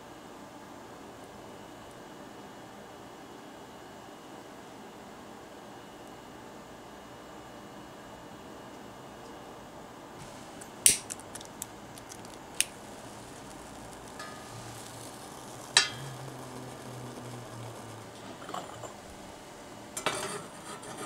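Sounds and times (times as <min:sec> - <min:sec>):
metallic ring: 0:15.8 - 0:16.8, 0:18.2 - 0:19.0.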